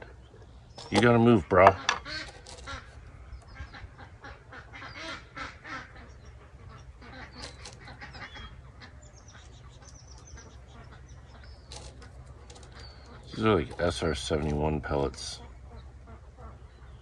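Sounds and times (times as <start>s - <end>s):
birds calling: 0.0s - 17.0s
pellets clicking and rattling: 0.8s - 1.2s, 1.9s - 2.8s, 7.4s - 7.9s, 11.7s - 14.0s.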